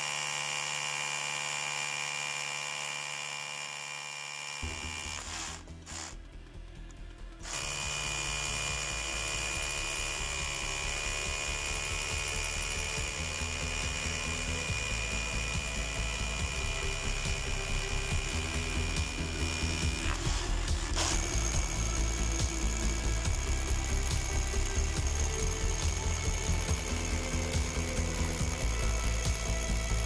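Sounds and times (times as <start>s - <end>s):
hammer drill boring into brick: 0.0s - 6.2s, 7.4s - 30.0s.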